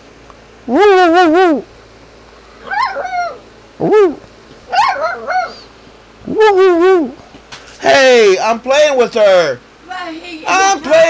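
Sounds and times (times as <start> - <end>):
puppy howling: 2.6 - 7.2.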